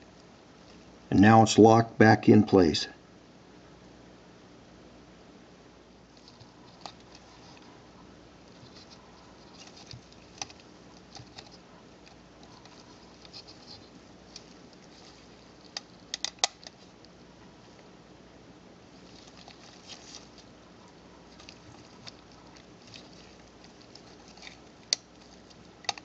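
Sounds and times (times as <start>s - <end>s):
camera parts clicking: 15.7s - 16.8s.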